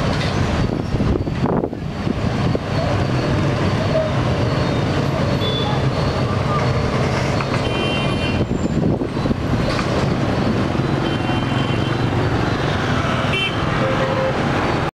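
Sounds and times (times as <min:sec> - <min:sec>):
motorbike and scooter traffic: 0:00.0 - 0:14.9
horn beeps: 0:02.8 - 0:08.7, 0:10.5 - 0:14.4.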